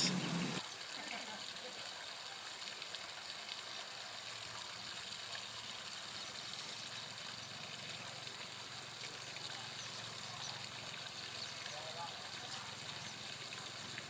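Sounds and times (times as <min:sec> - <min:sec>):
even hiss: 0:00.0 - 0:00.6.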